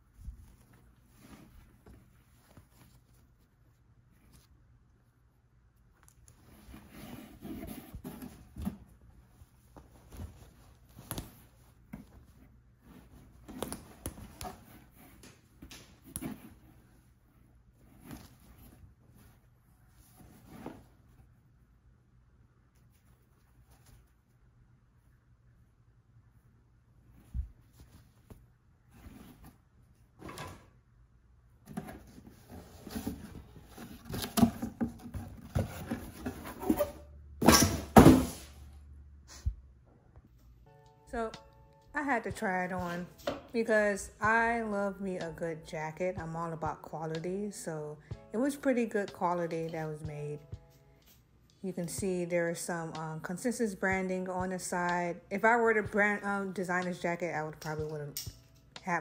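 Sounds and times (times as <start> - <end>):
cloth rustling: 0.0 - 4.7, 6.2 - 21.6, 27.0 - 30.2
cardboard box rustling: 31.7 - 36.9.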